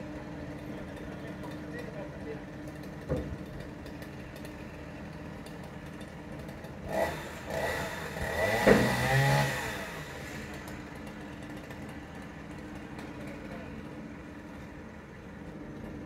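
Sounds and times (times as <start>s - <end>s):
pile driver engine revving: 6.4s - 11.9s.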